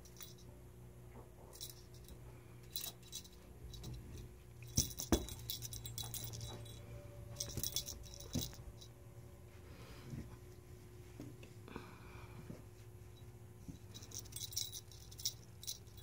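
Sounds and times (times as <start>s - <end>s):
beads clicking and jangling: 1.6s - 4.0s, 4.6s - 6.8s, 7.4s - 8.9s, 13.9s - 16.0s.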